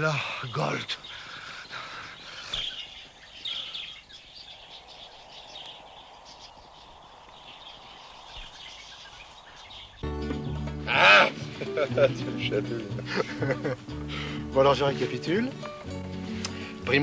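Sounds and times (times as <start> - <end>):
low steady hiss: 0.0 - 10.0
birds chirping: 0.0 - 17.0.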